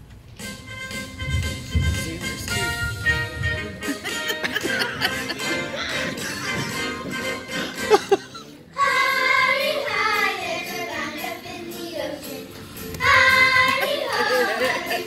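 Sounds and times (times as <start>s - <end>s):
backing music track: 0.3s - 15.0s
children singing: 8.7s - 12.4s, 13.0s - 15.0s.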